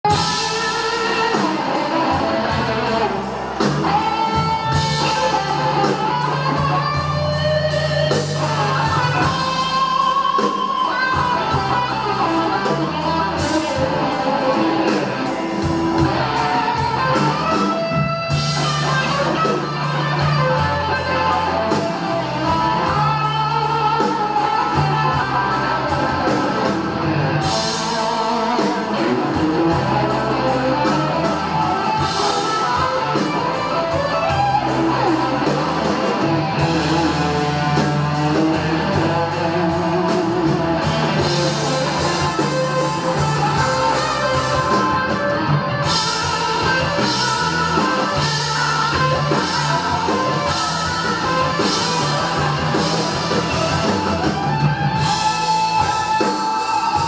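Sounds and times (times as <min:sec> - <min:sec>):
bass and drums: 0:00.0 - 0:57.0
electric guitar lead: 0:00.0 - 0:57.0.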